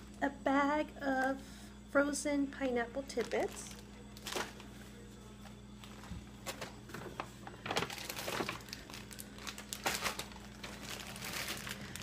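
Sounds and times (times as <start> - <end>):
plastic bags crinkling: 3.1 - 4.7, 5.8 - 12.0.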